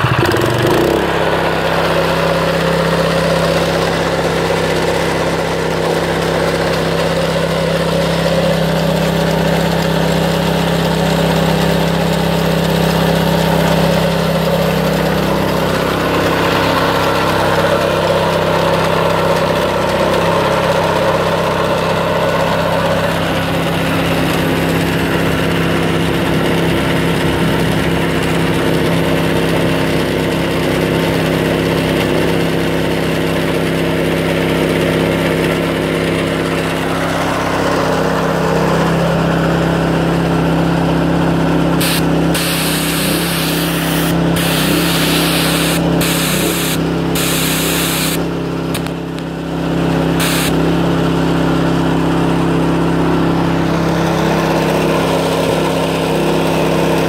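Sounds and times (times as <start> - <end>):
gas engine running: 0.0 - 57.0
spray gun hissing: 41.8 - 48.2, 50.2 - 50.6.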